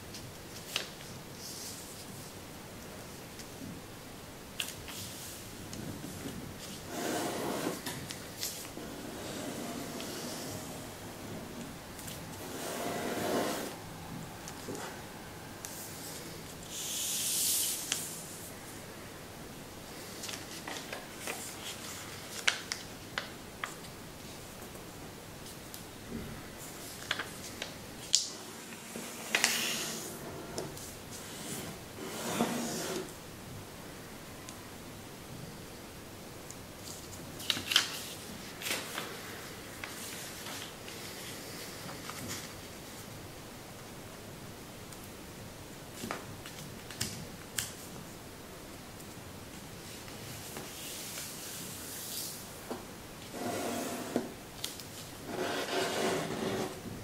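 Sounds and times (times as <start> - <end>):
paper rustling as folded: 0.1 - 2.4, 20.0 - 24.0, 26.6 - 31.7, 36.8 - 43.1
paper crackling: 20.2 - 24.0, 26.7 - 30.1, 36.8 - 39.2.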